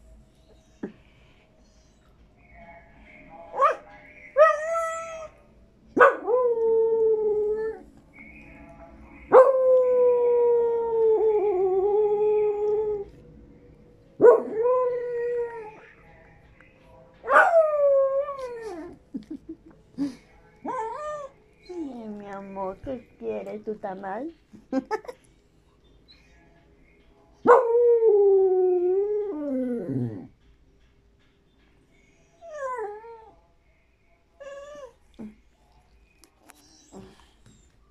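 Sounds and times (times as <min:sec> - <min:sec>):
dog howling: 0:20.6 - 0:22.0.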